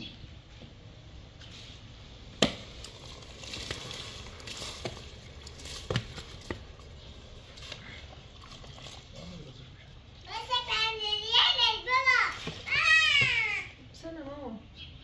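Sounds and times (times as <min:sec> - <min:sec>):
rice splashing into water: 0:02.4 - 0:06.7.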